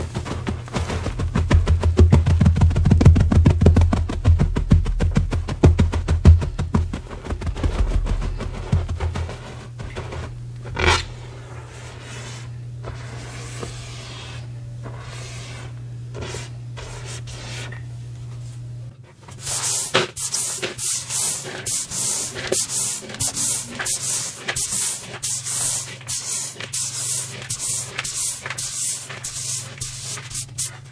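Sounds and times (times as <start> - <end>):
fingers pressing into powder: 0.0 - 17.5
low hum: 0.0 - 19.0
hand sweeping powder on stone: 11.1 - 17.7, 19.4 - 30.9
chalk crunch: 19.4 - 30.9.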